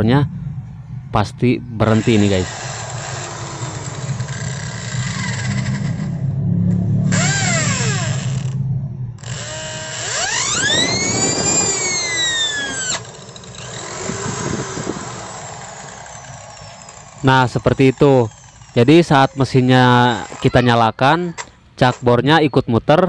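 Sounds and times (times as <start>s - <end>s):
electric drill running: 1.9s - 6.2s, 7.0s - 8.6s, 9.2s - 20.6s.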